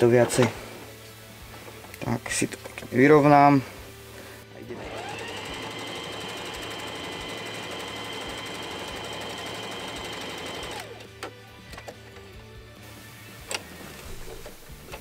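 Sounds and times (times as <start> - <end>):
sewing machine running: 4.7 - 11.0.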